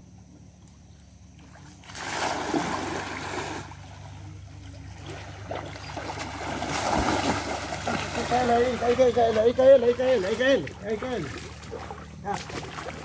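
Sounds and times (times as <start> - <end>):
water sloshing: 1.3 - 13.0
net splashing into water: 1.4 - 4.2, 5.0 - 9.1, 10.6 - 13.0.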